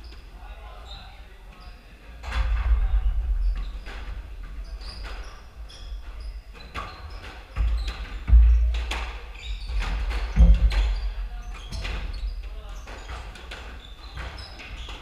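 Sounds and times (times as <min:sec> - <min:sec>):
squash ball hitting rackets and walls: 0:02.6 - 0:15.0
sneakers squeaking: 0:03.1 - 0:15.0.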